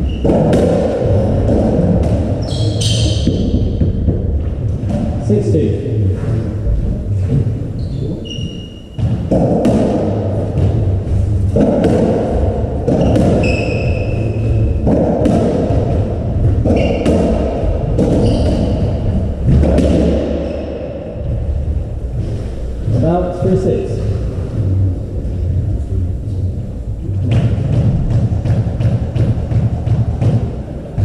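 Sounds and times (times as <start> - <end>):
rubber ball thumping off walls: 0.1 - 2.4, 8.9 - 20.4
racket striking ball: 0.1 - 4.2, 9.0 - 10.8, 11.5 - 20.5.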